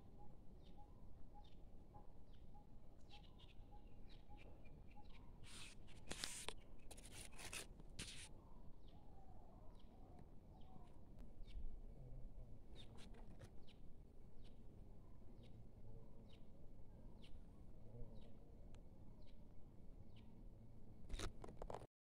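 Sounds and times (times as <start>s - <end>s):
faint bird chirps: 0.0s - 21.8s
scratching and rustling: 5.5s - 8.3s, 21.1s - 21.9s.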